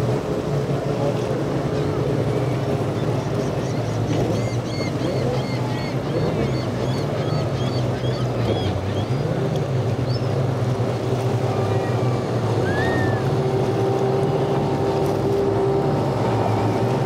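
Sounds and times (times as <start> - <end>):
engine whine: 0.0 - 17.0
outboard motor droning: 0.0 - 17.0.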